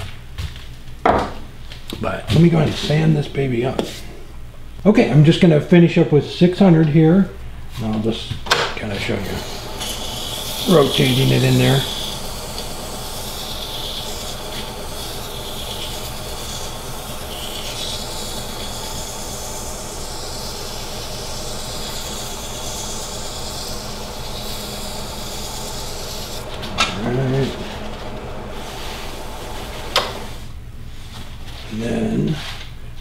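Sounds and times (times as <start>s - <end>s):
lathe running hum: 8.9s - 30.8s
sandpaper rubbing hiss: 9.2s - 30.5s.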